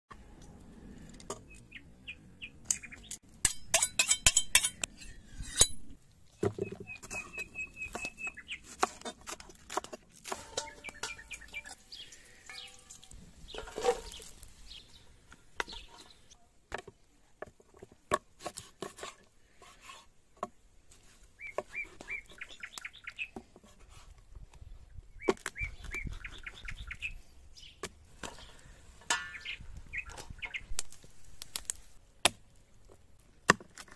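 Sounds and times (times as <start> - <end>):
birds chirping: 0.4 - 3.2, 6.3 - 8.8, 10.4 - 16.5, 21.3 - 23.5, 24.6 - 30.8
clinks and knocks in a pot: 10.3 - 11.8, 29.0 - 29.4.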